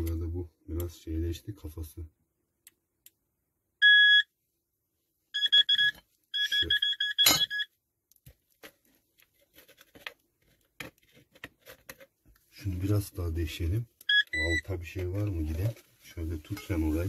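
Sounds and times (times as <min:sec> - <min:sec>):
metal detector beeping: 0:03.8 - 0:04.3, 0:05.4 - 0:07.7, 0:14.1 - 0:14.7.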